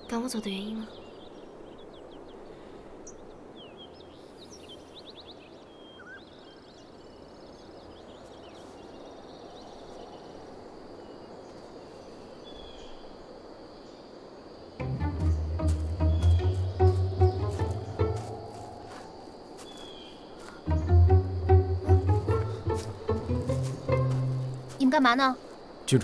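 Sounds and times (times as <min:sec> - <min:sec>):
soft woodland hiss: 0:00.0 - 0:26.0
bird chirps and trill: 0:14.8 - 0:19.0.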